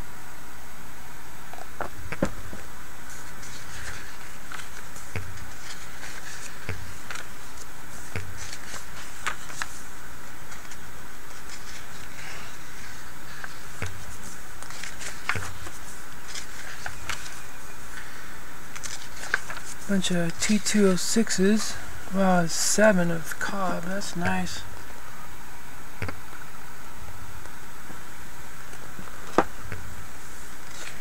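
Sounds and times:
steady hiss: 0.0s - 31.0s
pages turning: 1.5s - 21.8s, 28.7s - 31.0s.

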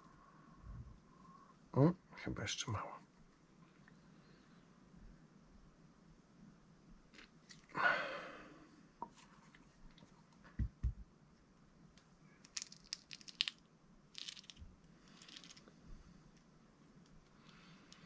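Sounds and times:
rasping crinkle: 14.2s - 15.7s.

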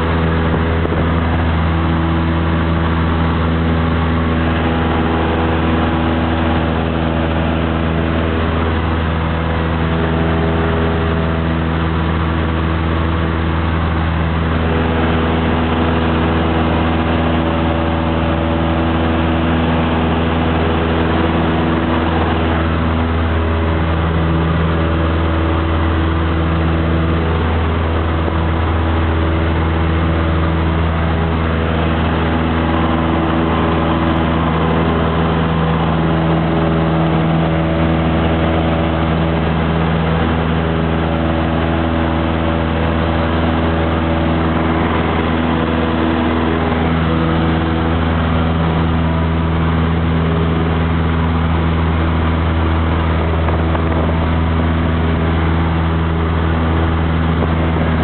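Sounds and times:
airplane engine droning: 0.0s - 58.0s.

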